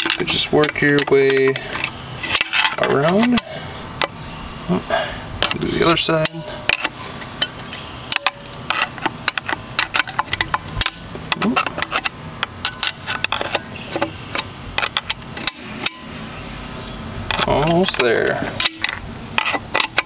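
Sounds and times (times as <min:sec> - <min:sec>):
screwdriver scraping and clicking on metal: 0:00.0 - 0:03.5, 0:08.1 - 0:16.0, 0:16.8 - 0:20.0.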